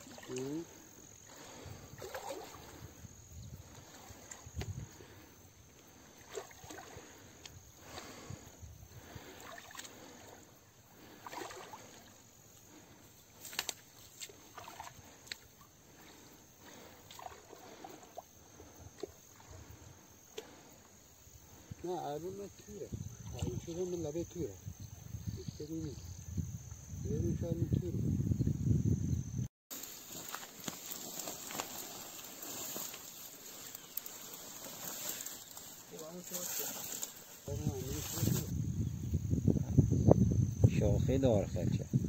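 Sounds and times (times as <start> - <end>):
water sloshing from wading: 0.0 - 3.0, 3.6 - 21.7
high insect chirring: 0.0 - 42.0.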